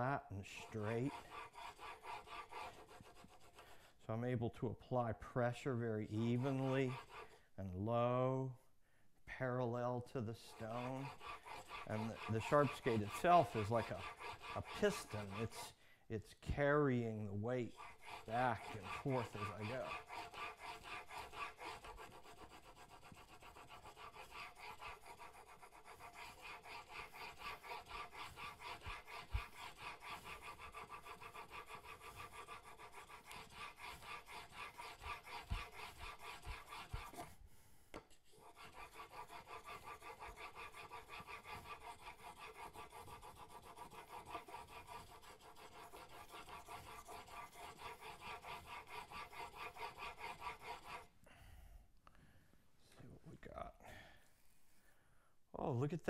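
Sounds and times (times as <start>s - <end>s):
chisel scraping on sharpening stone: 0.4s - 3.9s, 5.5s - 7.4s, 10.4s - 15.7s, 16.5s - 37.3s, 37.9s - 51.1s.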